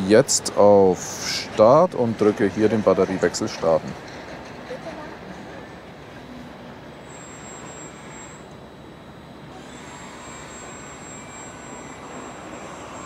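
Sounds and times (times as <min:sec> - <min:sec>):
machinery and air rushing hum: 0:00.0 - 0:13.0
faint high whine: 0:05.6 - 0:13.0.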